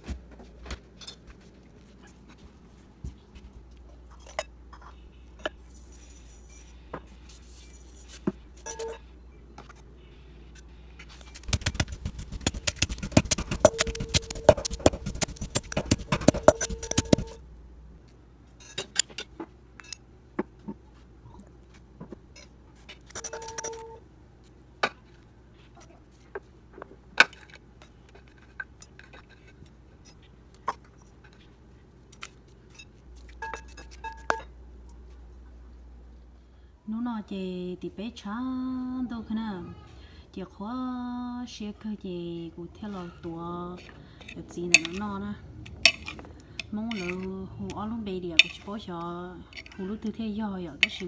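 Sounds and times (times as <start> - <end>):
pestle pounding in metal mortar: 11.4 - 17.4.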